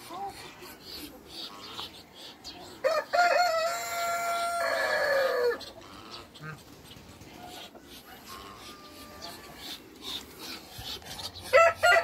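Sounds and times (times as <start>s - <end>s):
rooster crowing: 2.8s - 5.6s, 11.5s - 12.0s.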